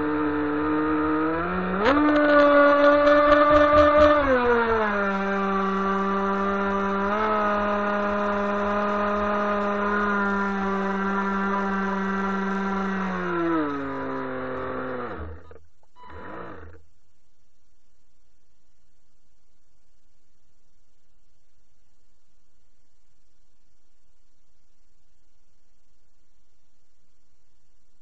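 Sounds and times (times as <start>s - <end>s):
rc boat motor whine: 0.0s - 16.8s.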